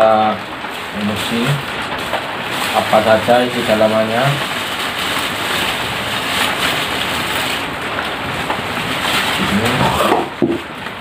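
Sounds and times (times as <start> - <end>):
plastic bag crinkling: 0.2 - 11.0.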